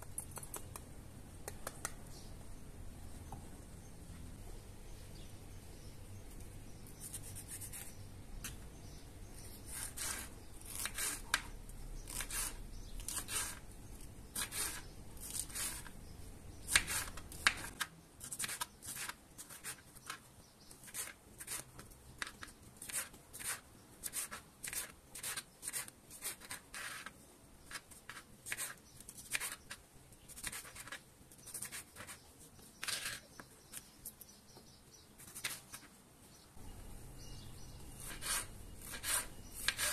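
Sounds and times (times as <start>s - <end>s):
knife slicing peppers on board: 38.0s - 39.9s.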